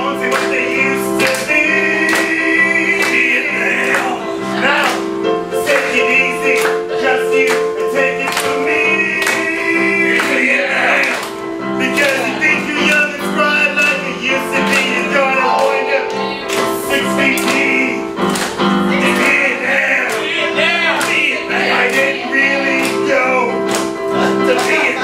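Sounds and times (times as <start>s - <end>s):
live band playing: 11.3s - 19.4s
person singing: 11.8s - 25.0s.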